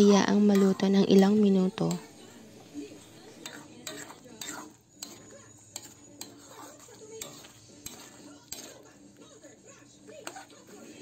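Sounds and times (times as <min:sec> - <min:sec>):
metal ladle scraping a pan: 0:00.0 - 0:09.0, 0:10.2 - 0:11.0.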